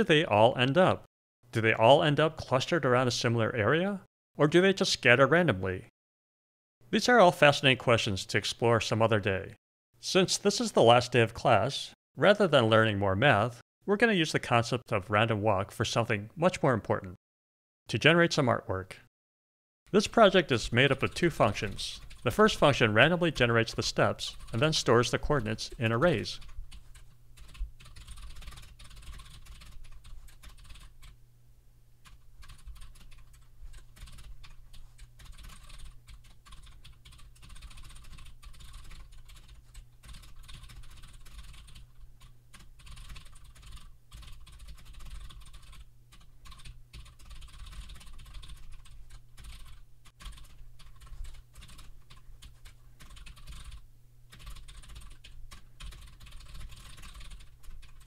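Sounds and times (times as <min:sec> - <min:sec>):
typing on computer keyboard: 0:26.0 - 0:31.2, 0:32.0 - 0:58.0.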